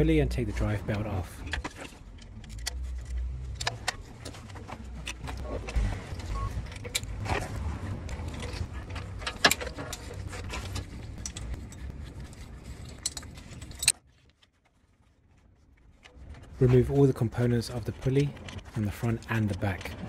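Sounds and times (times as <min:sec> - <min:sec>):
low steady rumble: 0:00.0 - 0:14.0
metal tools clinking on pulley: 0:08.2 - 0:14.0.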